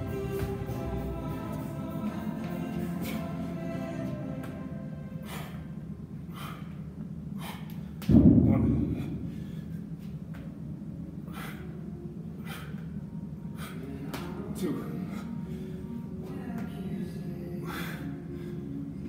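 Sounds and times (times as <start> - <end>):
man breathing hard: 2.7 - 10.2, 11.1 - 16.2, 17.6 - 19.0
loud thud: 8.1 - 9.3.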